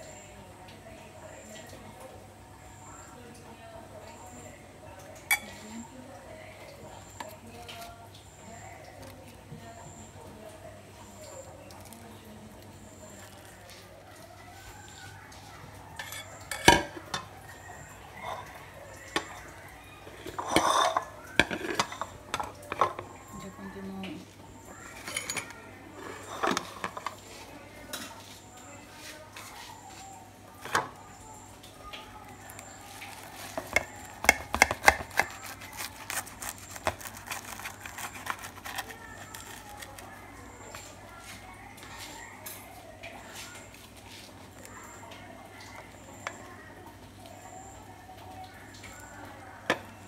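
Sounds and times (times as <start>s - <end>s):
dishes clinking and knocking: 16.0s - 17.4s, 20.1s - 23.1s, 25.0s - 27.2s, 33.5s - 35.4s
knife sawing through crispy sandwich: 34.7s - 40.0s.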